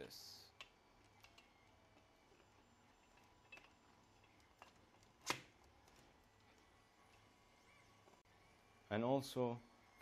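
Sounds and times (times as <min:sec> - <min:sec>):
plastic parts clicking: 0:00.5 - 0:06.2.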